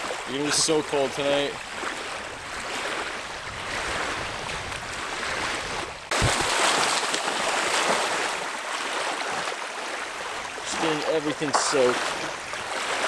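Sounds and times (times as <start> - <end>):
lake waves lapping on shore: 0.0 - 13.0
dog splashing in water: 6.1 - 9.4.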